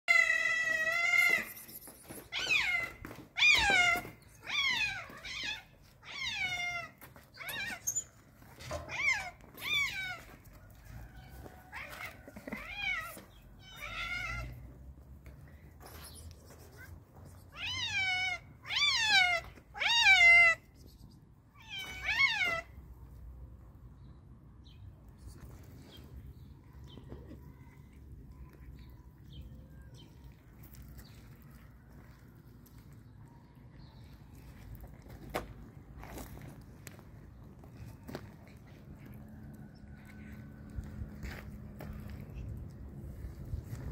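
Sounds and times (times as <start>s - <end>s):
cat meowing loudly: 0.1s - 1.6s, 2.3s - 7.8s, 11.7s - 14.6s, 17.5s - 20.6s, 21.6s - 22.7s.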